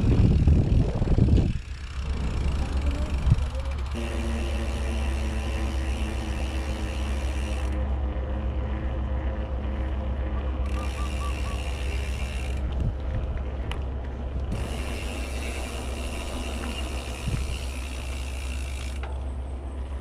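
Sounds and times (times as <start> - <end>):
wind on microphone: 0.0 - 4.1, 10.8 - 18.2
bike freehub clicking rapidly: 0.0 - 19.3
tyres rumbling on pavement: 0.0 - 20.0.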